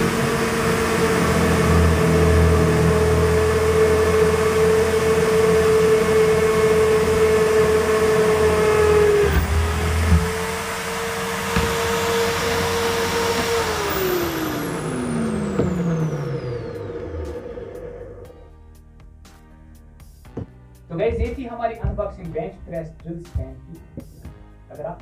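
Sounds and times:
drill bit grinding into wood: 0.0s - 17.4s
drill motor whining: 0.0s - 18.3s.

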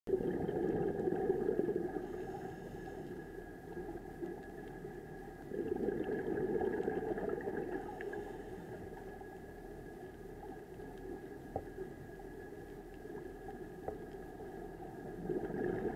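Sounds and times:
underwater regulator bubbles: 0.1s - 9.1s, 13.0s - 15.9s
faint steady hum: 0.1s - 15.9s.

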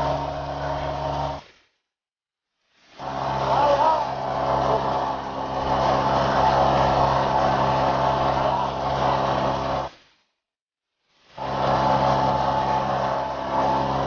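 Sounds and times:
boat engine running: 0.0s - 1.5s, 3.0s - 10.0s, 11.4s - 14.0s.

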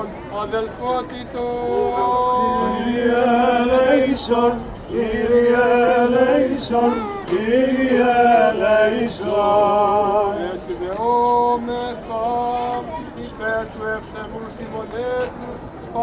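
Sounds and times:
men singing chant: 1.4s - 12.8s.

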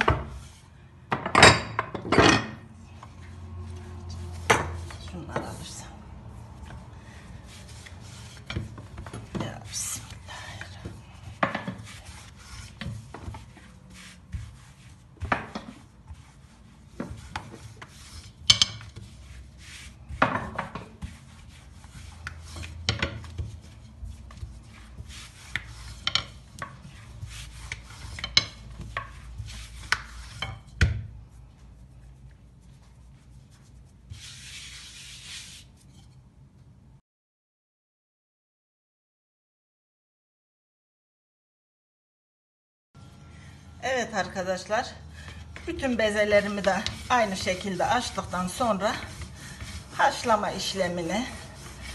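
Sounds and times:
rolling pin rubbing on dough: 3.3s - 36.2s, 44.9s - 51.9s.

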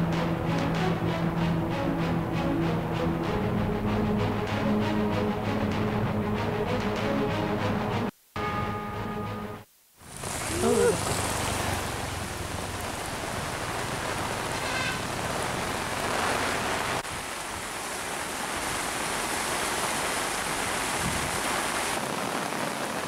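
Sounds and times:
heavy rain falling: 10.0s - 23.0s
rushing floodwater: 10.0s - 23.0s.

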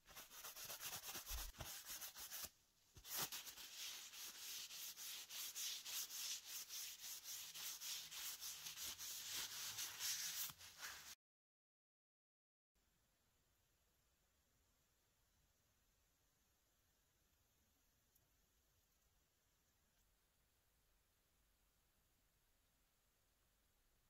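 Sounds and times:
paper towel scuffing on wood: 3.0s - 11.2s.

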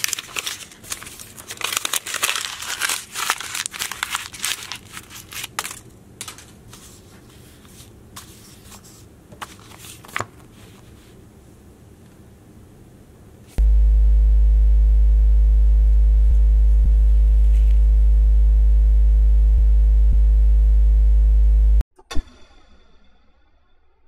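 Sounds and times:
loud electronic hum: 13.6s - 21.8s.

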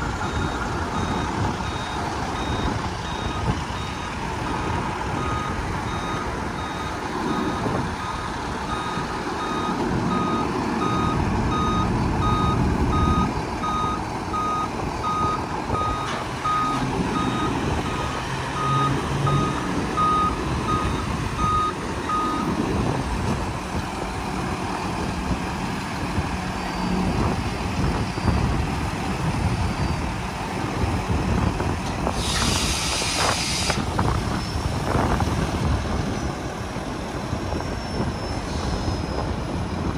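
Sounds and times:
diesel engine running: 0.0s - 39.9s
warning beeps: 5.2s - 22.5s
air hiss: 32.1s - 33.9s.

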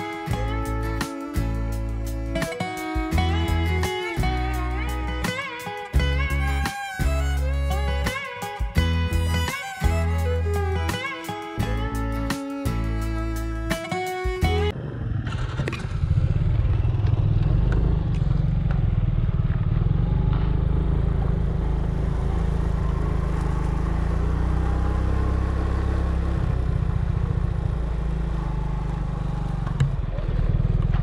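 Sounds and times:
vehicle engine running: 14.4s - 31.0s.

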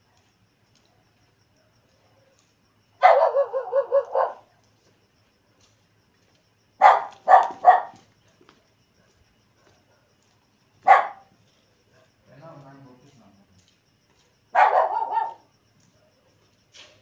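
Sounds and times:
dog barking: 3.0s - 4.5s, 6.8s - 8.0s, 9.0s - 10.2s, 10.8s - 11.3s, 14.5s - 16.4s.

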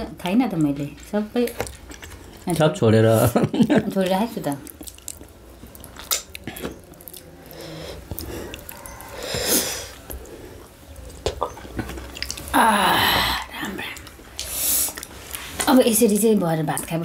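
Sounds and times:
chewing and lip smacks: 4.4s - 9.0s, 10.1s - 12.5s
breathy hissing sound: 7.4s - 10.8s, 12.5s - 15.6s.

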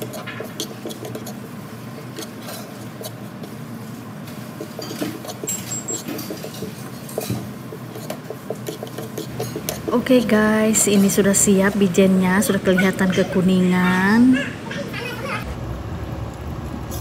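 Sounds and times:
spoon scraping a pan: 0.0s - 3.6s, 4.4s - 11.3s.

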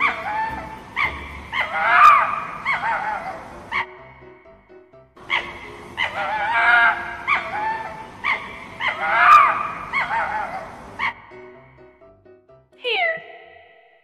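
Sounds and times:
fox calling: 0.0s - 4.1s, 5.2s - 11.3s.

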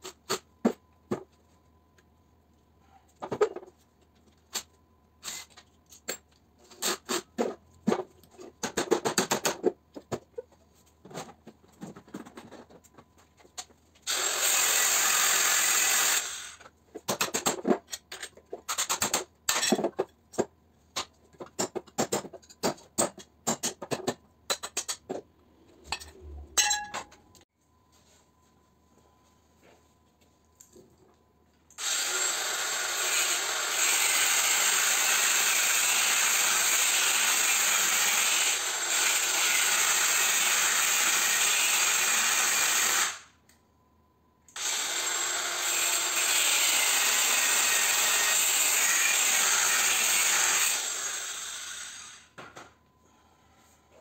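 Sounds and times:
handheld grinder cutting metal: 14.1s - 16.6s, 31.8s - 43.3s, 44.6s - 52.3s
metal tools knocking and clanking: 25.8s - 27.3s.

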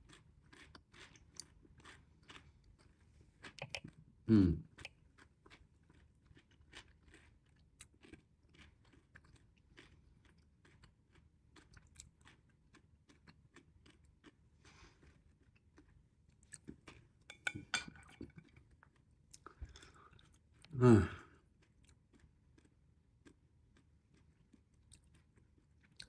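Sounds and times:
person chewing food: 0.0s - 26.0s.

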